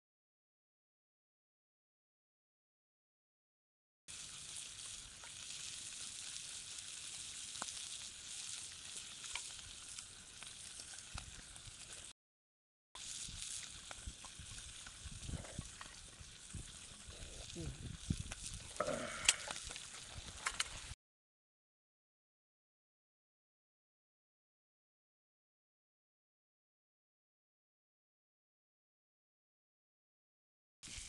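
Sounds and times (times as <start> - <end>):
fire crackling: 4.1 - 12.1, 13.0 - 21.0
food sizzling in a skillet: 4.1 - 12.1, 13.0 - 21.0.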